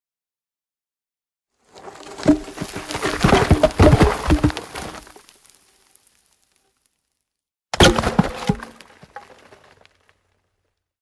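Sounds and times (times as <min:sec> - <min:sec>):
wood and foliage snapping: 0:01.9 - 0:06.2.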